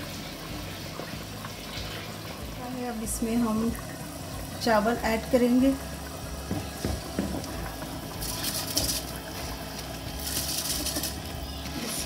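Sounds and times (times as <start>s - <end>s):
rice grains pattering into water: 6.6s - 12.0s.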